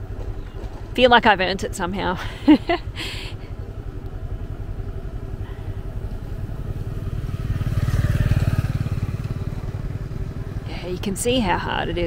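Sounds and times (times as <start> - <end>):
small motorbike engine running: 2.8 - 12.0.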